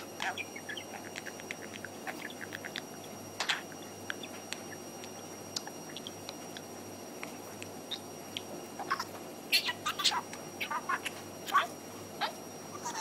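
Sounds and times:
budgerigar chattering: 0.0s - 4.8s, 7.9s - 13.0s.

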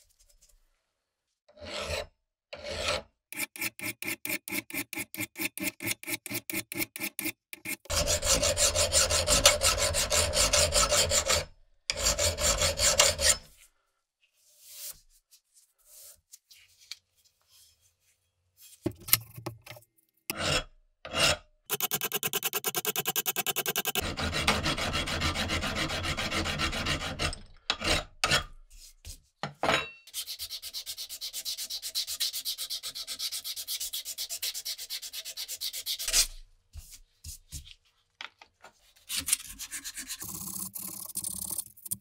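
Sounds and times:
file rasping on steel blade: 1.5s - 13.5s, 20.3s - 28.5s, 30.1s - 36.4s, 39.2s - 40.6s.

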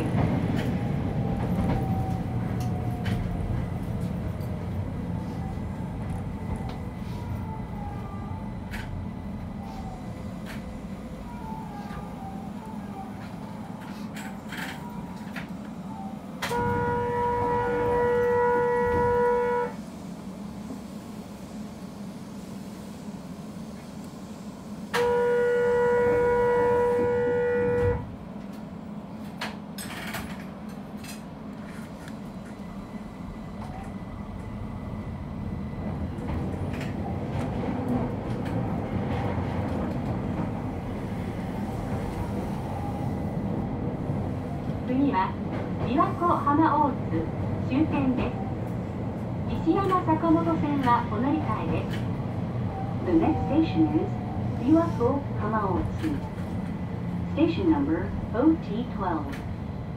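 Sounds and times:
train running noise: 0.0s - 59.9s
train horn blasts: 16.4s - 19.8s, 24.9s - 28.1s.

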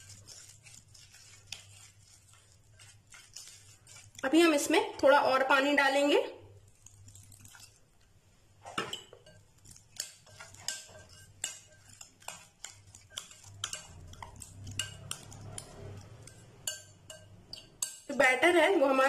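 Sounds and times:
spoon scraping glass bowl: 0.0s - 4.7s, 8.6s - 18.8s.

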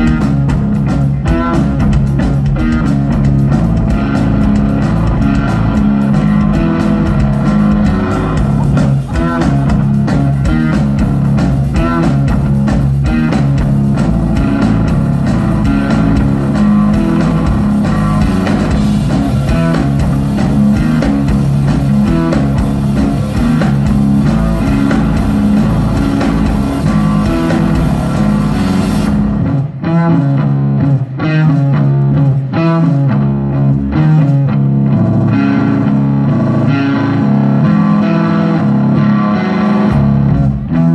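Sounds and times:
bass guitar: 0.0s - 40.9s
drum kit: 0.0s - 40.9s
electric guitar: 0.0s - 40.9s.

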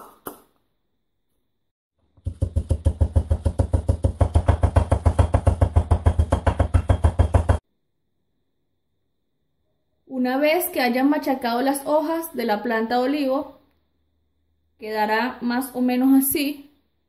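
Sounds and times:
wooden pestle pounding in mortar: 2.2s - 7.6s.

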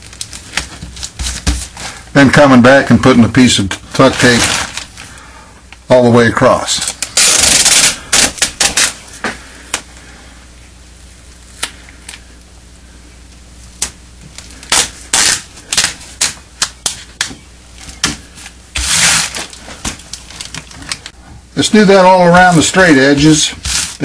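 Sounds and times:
duct tape crackling: 0.0s - 2.0s, 2.9s - 10.0s, 10.7s - 24.0s
hand rubbing tape: 0.0s - 2.0s, 6.8s - 9.3s, 13.8s - 21.2s, 22.3s - 24.0s
plastic tarp crinkling: 3.8s - 5.2s, 6.6s - 9.2s, 17.9s - 21.1s, 21.8s - 24.0s.

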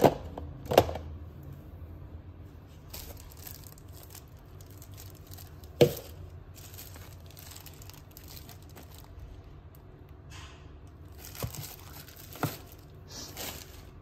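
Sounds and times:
plastic bag crinkling: 2.7s - 9.5s, 10.9s - 14.0s.

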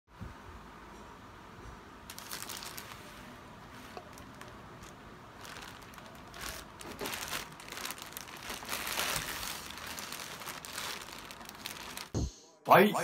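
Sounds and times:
plastic bag crinkling: 2.1s - 12.2s.

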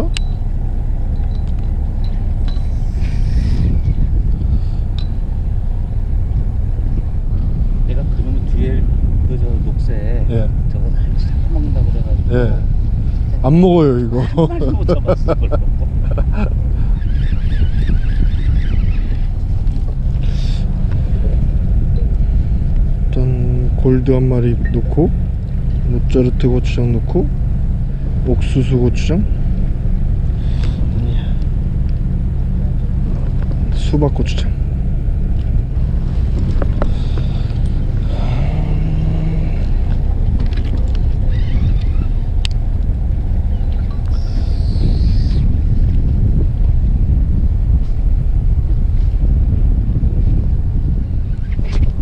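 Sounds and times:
boat engine droning: 0.0s - 52.0s
wind on microphone: 0.0s - 52.0s.

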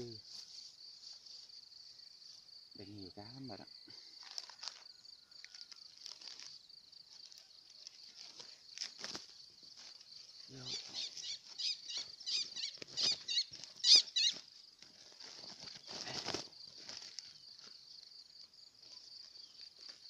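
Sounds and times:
high insect drone: 0.0s - 20.0s
warbling high-pitched calls: 10.6s - 14.4s.

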